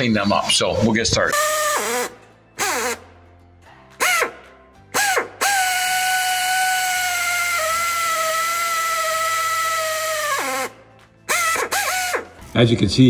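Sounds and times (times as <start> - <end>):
power drill whining: 1.3 - 3.0, 5.0 - 12.4.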